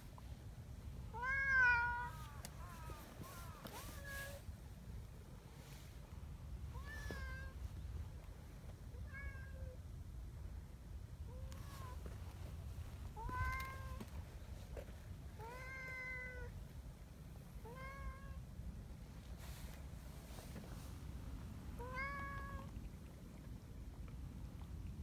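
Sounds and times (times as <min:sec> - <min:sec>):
low steady rumble: 0:00.0 - 0:25.0
cat meowing: 0:01.2 - 0:04.4, 0:21.8 - 0:22.7.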